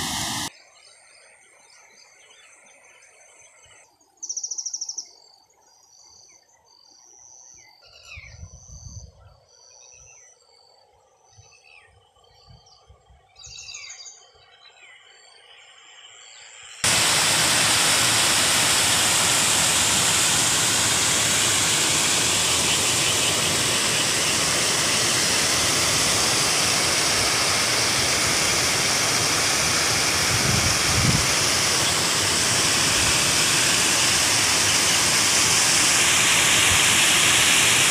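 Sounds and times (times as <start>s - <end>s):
floodwater rushing: 0.0s - 0.5s, 16.8s - 37.9s.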